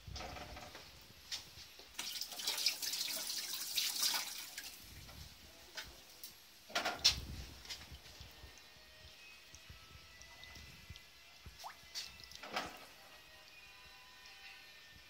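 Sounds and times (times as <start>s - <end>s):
water drips and splashes: 1.9s - 5.2s, 6.2s - 13.6s.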